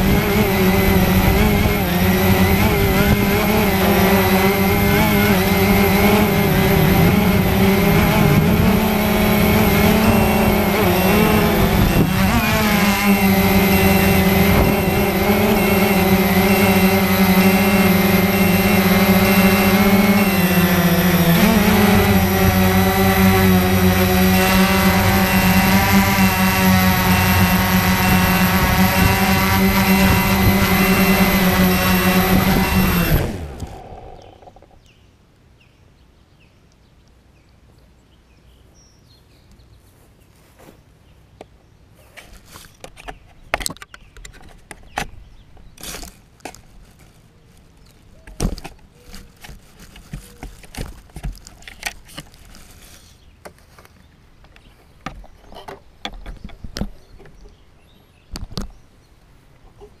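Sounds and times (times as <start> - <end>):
drone motors winding down: 0.0 - 34.9
knocks clicks and rustles: 48.2 - 52.8.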